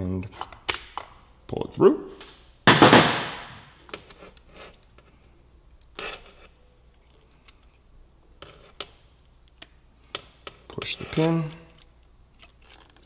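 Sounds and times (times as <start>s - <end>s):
metal parts scraping rattle: 12.4s - 13.0s.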